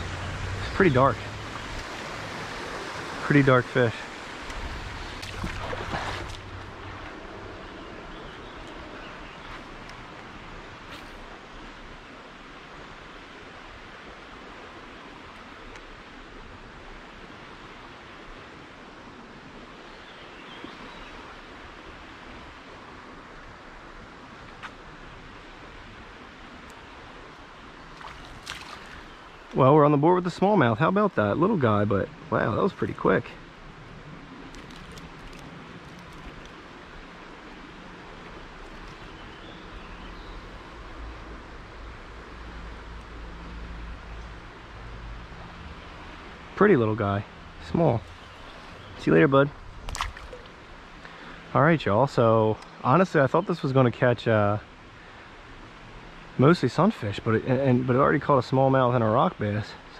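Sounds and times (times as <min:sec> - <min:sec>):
creek flowing over rocks: 0:00.0 - 0:59.9
wind rumble on microphone: 0:04.1 - 0:12.0.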